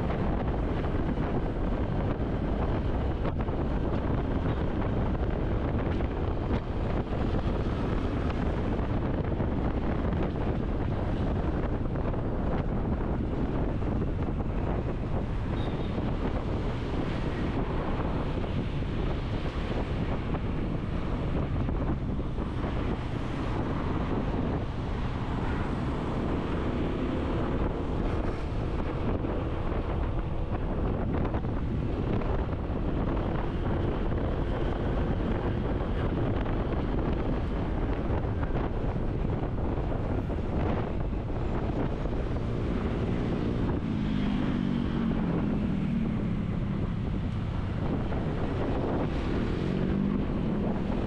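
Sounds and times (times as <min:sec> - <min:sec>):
wind buffeting microphone: 0:00.0 - 0:51.0.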